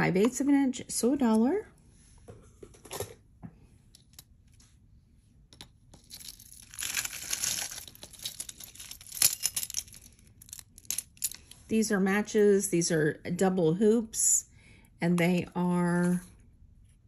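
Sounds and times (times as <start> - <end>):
metal jewelry clinking and rattling: 5.6 - 11.6.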